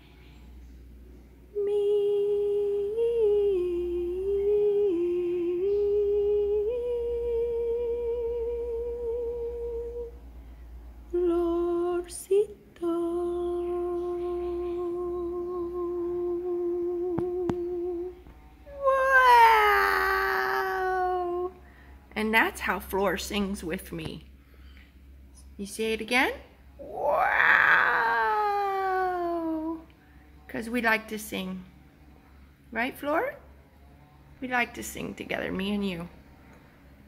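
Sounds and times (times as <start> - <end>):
person humming held notes: 1.5 - 10.2, 11.1 - 21.6.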